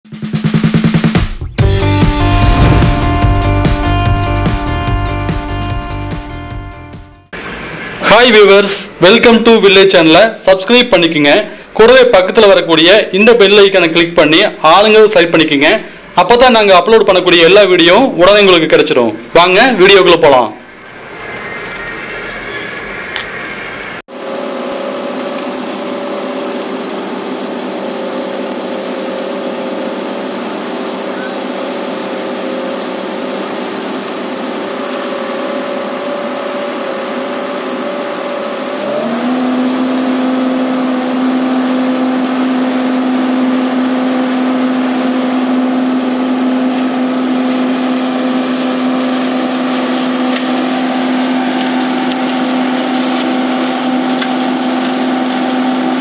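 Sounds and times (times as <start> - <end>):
diesel engine of concrete mixer: 11.4 - 12.1, 15.6 - 16.3, 20.6 - 56.0.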